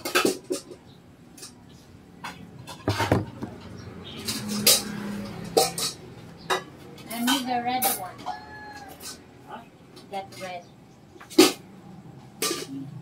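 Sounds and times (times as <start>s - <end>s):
cutting board clattering: 2.7s - 3.6s.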